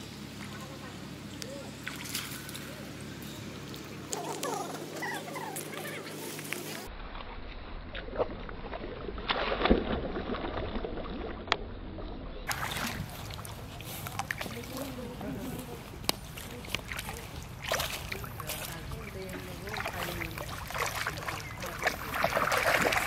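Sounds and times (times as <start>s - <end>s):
monkeys splashing in water: 1.7s - 6.9s, 12.5s - 23.0s.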